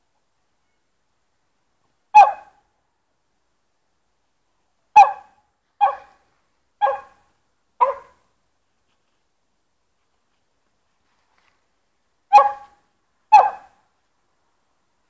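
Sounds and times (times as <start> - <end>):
small dog barking: 2.2 - 2.6, 5.0 - 6.2, 6.8 - 7.2, 7.8 - 8.2, 12.3 - 13.8.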